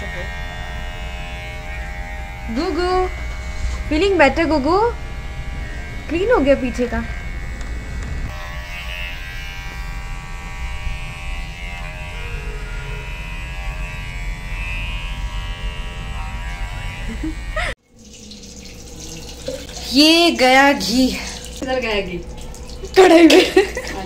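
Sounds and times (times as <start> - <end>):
electric clippers buzzing: 0.0 - 17.8.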